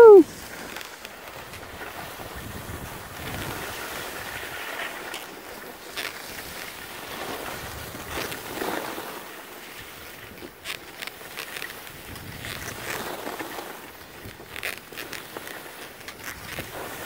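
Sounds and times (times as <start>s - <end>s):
skis scraping over snow: 0.2s - 17.0s
wind on microphone: 1.5s - 4.7s, 11.9s - 13.1s.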